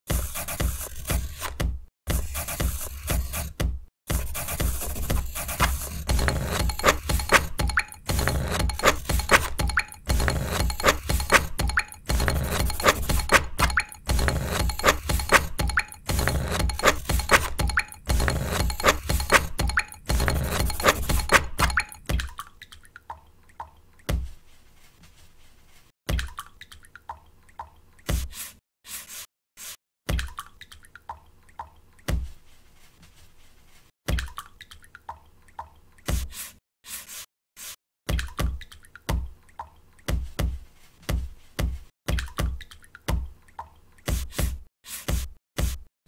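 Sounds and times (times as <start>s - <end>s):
paint drips and taps beat: 0.1s - 24.3s, 26.1s - 28.3s, 30.1s - 32.3s, 34.1s - 36.3s, 38.1s - 45.8s
brush strokes in water: 4.3s - 22.0s, 24.4s - 25.9s, 28.2s - 29.8s, 32.4s - 34.0s, 36.0s - 37.8s
water drips: 21.1s - 24.2s, 26.1s - 28.1s, 30.1s - 32.1s, 34.1s - 36.1s, 38.1s - 40.2s, 42.1s - 44.1s.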